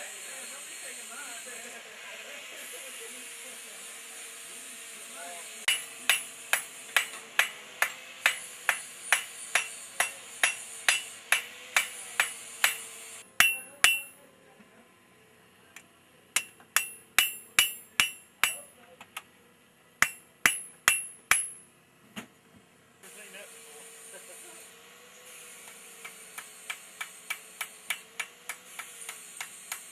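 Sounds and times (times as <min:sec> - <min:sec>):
hammer striking metal on anvil: 0:05.7 - 0:14.2, 0:16.4 - 0:18.7, 0:20.0 - 0:21.7.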